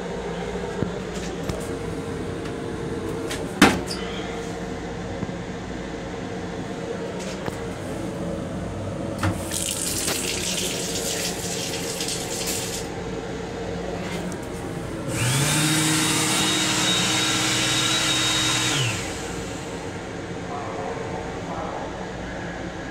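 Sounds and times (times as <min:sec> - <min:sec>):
hand dryer blowing: 0:09.2 - 0:12.9, 0:14.9 - 0:20.1
faucet running water: 0:09.4 - 0:12.9.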